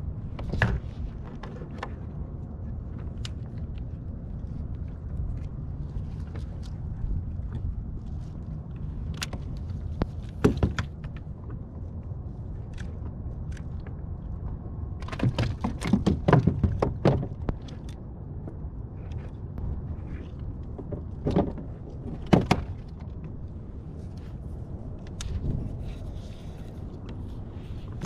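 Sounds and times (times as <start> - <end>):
low rumble: 0.0 - 28.0
fishing gear knocking and clattering: 9.0 - 11.6, 14.9 - 18.6, 20.3 - 23.3.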